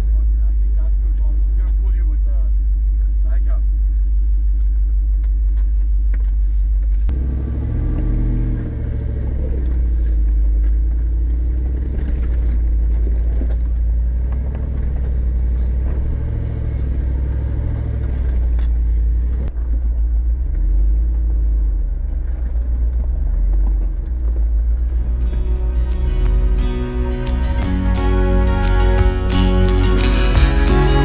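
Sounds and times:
vehicle engine rumbling: 0.0s - 31.0s.

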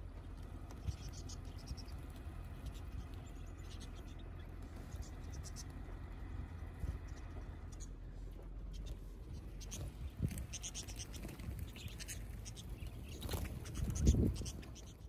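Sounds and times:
steady low rumble: 0.0s - 15.0s
budgerigars chirping: 0.2s - 8.0s, 8.6s - 15.0s.

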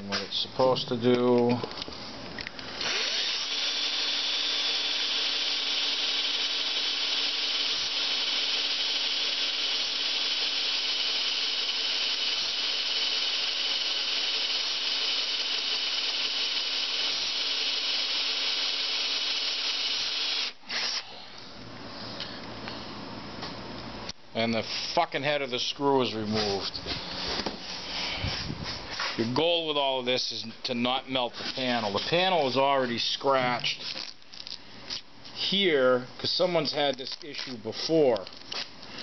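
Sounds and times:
power drill boring through metal: 2.8s - 21.0s.

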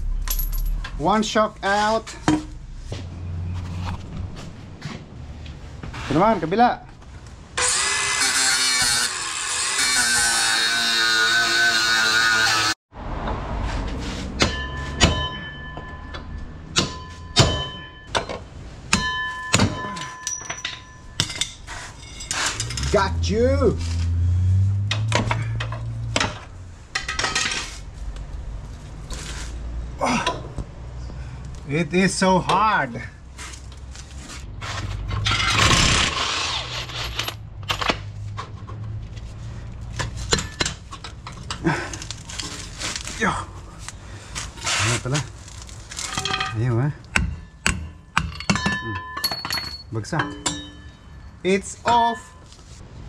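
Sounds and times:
low steady hum: 0.0s - 5.7s
metal tools scraping: 19.0s - 24.2s, 33.4s - 37.9s, 44.4s - 52.8s
metal tools knocking on metal: 46.1s - 51.2s.

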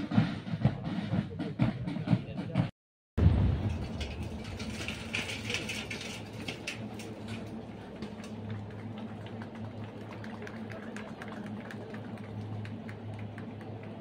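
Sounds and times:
vehicle engines humming: 3.5s - 14.0s.

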